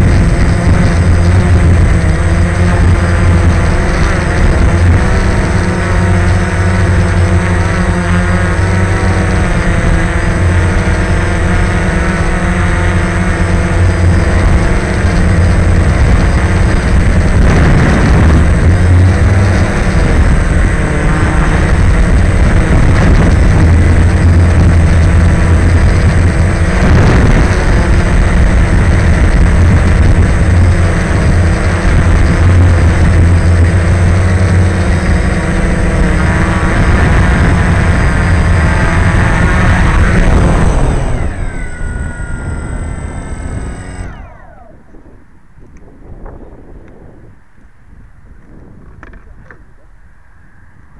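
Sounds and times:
model car rumbling on concrete: 0.0 - 44.7
motor whine: 0.0 - 50.9.

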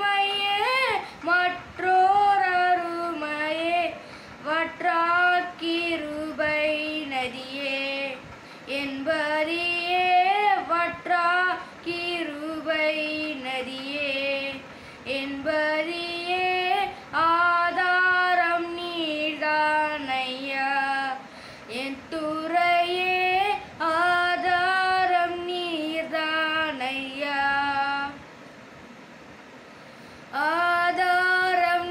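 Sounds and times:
boy singing solo: 0.0 - 28.2, 30.3 - 31.9.

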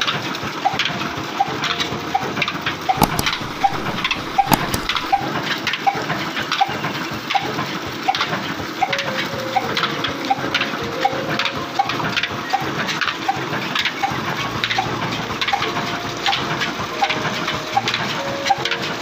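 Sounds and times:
engine and belt drive knocking: 0.0 - 10.1.

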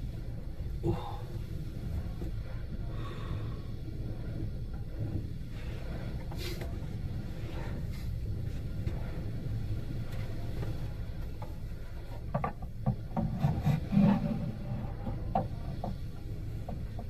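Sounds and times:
steady low rumble: 0.0 - 17.0
rubbing noises: 11.8 - 17.0.

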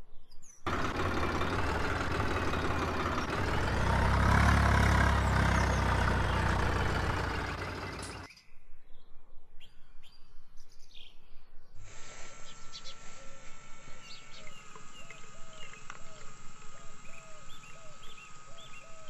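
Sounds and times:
birds chirping faintly: 0.5 - 8.6, 12.5 - 19.0.

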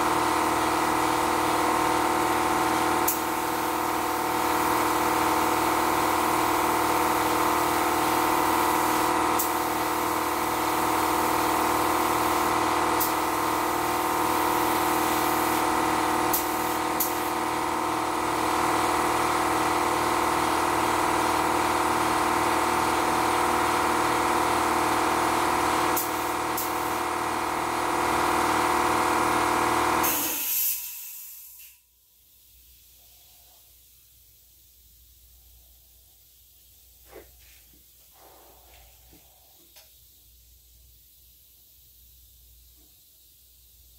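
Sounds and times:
air compressor running: 0.0 - 31.7, 36.2 - 43.9
compressor shutting off with hiss: 0.0 - 33.0.

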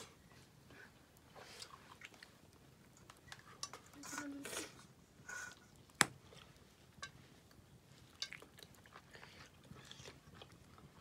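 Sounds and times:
person chewing: 8.0 - 11.0.

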